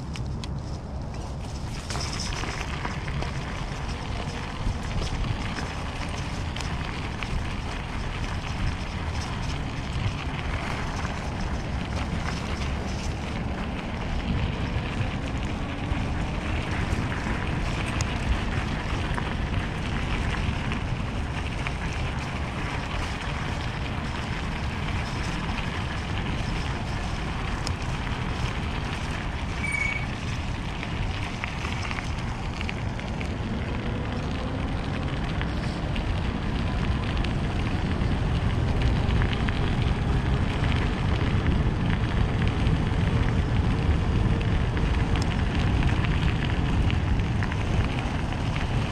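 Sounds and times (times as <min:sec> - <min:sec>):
tyres crackling over gravel: 0:00.0 - 0:48.9
wind rushing over microphone: 0:00.0 - 0:48.9
faint whine: 0:29.3 - 0:30.4
brief high chirp: 0:29.6 - 0:30.1.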